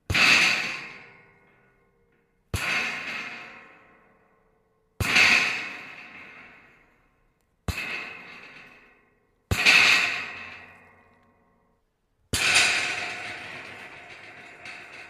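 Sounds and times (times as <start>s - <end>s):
scrap metal rattling: 9.5s - 11.0s, 12.4s - 15.0s.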